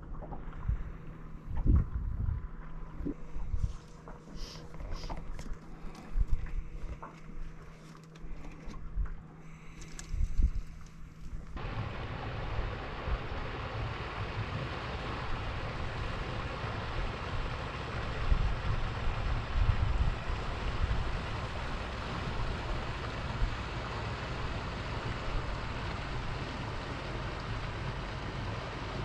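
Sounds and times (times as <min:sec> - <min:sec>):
wind buffeting microphone: 0:00.6 - 0:03.9, 0:10.0 - 0:29.0
open water rushing: 0:11.6 - 0:29.0.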